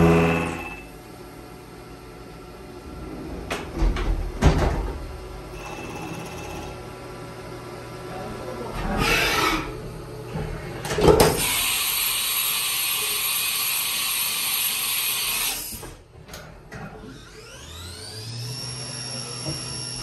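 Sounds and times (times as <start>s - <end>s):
machine clunk: 3.4s - 5.2s.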